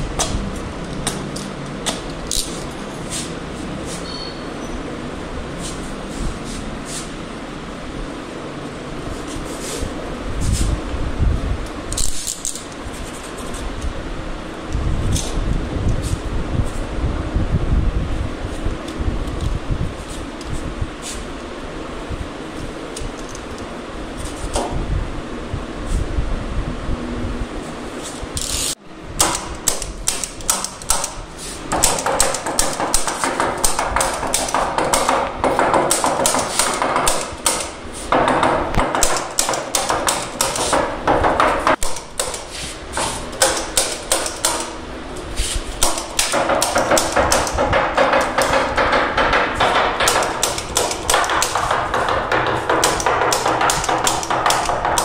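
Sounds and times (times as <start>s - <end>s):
staple gun firing: 29.2s - 31.2s.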